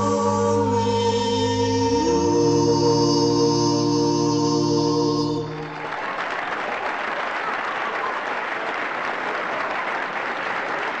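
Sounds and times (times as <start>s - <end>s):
voices and organ chord: 0.0s - 5.9s
audience applauding: 5.5s - 11.0s.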